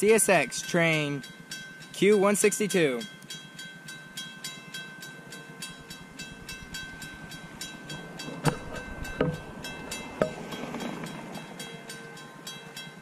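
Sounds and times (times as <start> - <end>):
crossing bell ringing: 0.0 - 13.0
train rumble: 0.0 - 13.0
knocks: 8.3 - 9.5.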